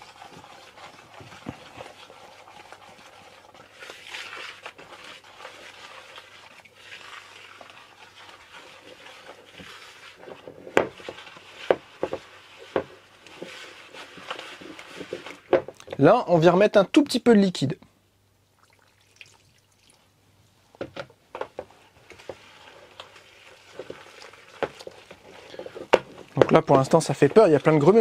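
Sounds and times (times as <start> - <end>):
whisk mixing batter in bowl: 0.0 - 15.6, 21.4 - 28.0
whisk knocking on bowl: 10.7 - 14.1.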